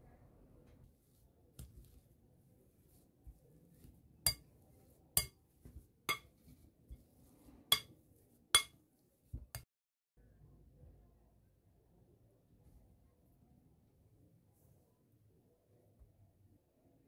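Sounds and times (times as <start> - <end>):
masher clinking against glass bowl: 4.3 - 4.5, 7.7 - 7.9.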